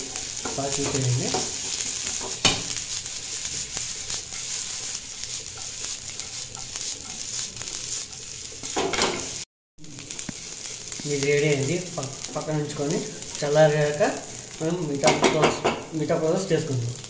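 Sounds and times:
wooden spatula scraping pan: 0.0 - 9.4
vegetables sizzling in oil: 0.0 - 17.0.

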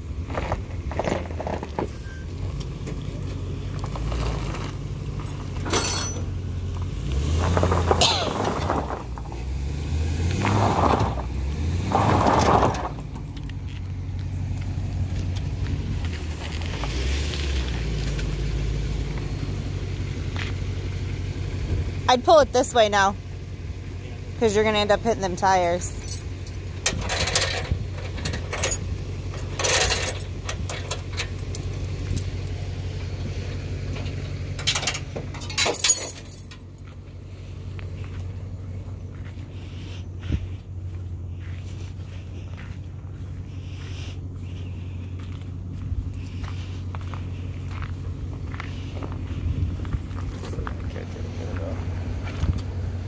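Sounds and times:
vehicle engine humming: 0.0 - 53.0
metallic rattles and clanks: 0.4 - 6.5, 24.5 - 36.9.

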